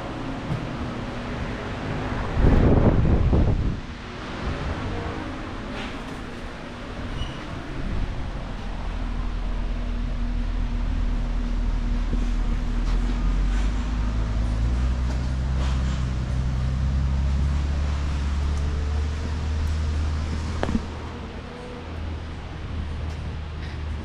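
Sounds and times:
truck engine idling: 5.3s - 24.0s.

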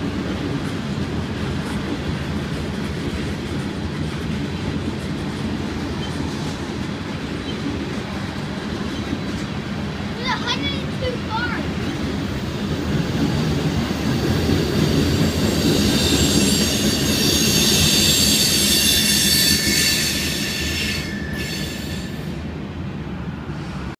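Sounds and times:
train wheels rumbling on rails: 0.0s - 23.9s
wheels squealing on rail: 5.8s - 6.7s, 7.3s - 9.5s, 11.5s - 22.5s.

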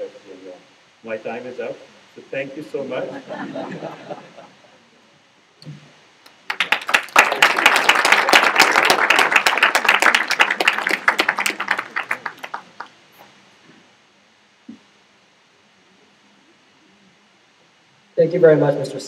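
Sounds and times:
audience applauding: 6.3s - 13.2s.

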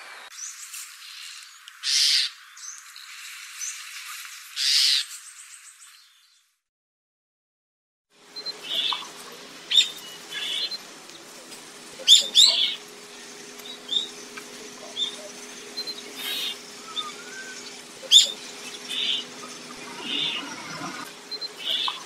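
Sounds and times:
starling chirping: 8.4s - 10.8s, 12.0s - 12.9s, 13.6s - 22.0s.

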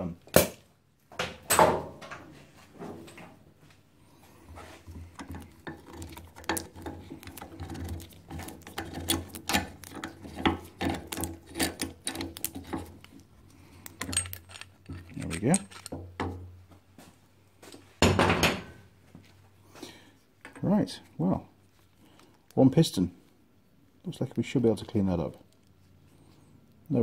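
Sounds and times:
clamp screw clicking and scraping: 5.2s - 13.2s, 13.8s - 16.0s.

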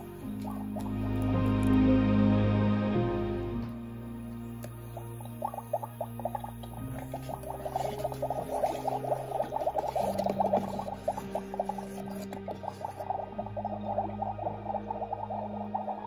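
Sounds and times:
low synthesizer notes: 0.0s - 16.0s
electronic bubbling crackle: 5.0s - 16.0s.

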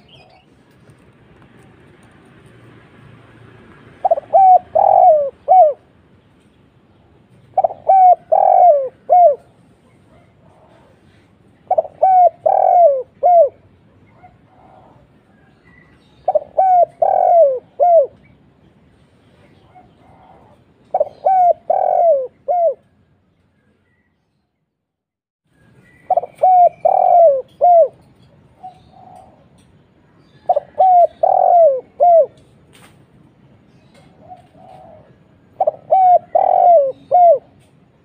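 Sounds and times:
dove cooing: 4.0s - 5.9s, 7.5s - 18.2s, 19.5s - 22.9s, 26.1s - 29.6s, 30.2s - 32.5s, 34.0s - 37.7s.

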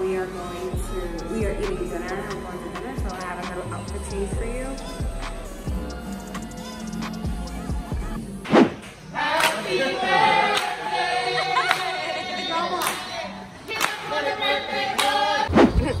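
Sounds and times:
voices singing wavering notes: 0.0s - 8.4s.

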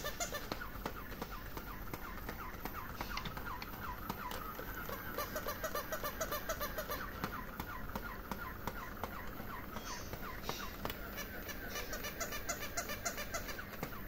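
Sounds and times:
toy chirping squeaks: 0.0s - 1.2s, 4.8s - 7.2s, 9.7s - 14.0s
toy mechanism clicking: 0.0s - 14.0s.

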